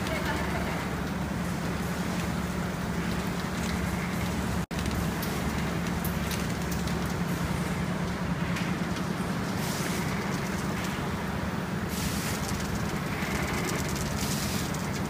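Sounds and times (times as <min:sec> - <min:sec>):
machine motor hum: 0:00.0 - 0:15.0
light clicks of paper rollers: 0:11.9 - 0:15.0.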